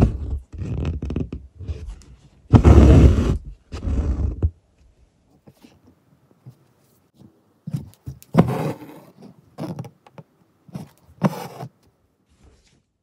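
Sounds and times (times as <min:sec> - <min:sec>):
cloth rustling: 0:10.7 - 0:13.0.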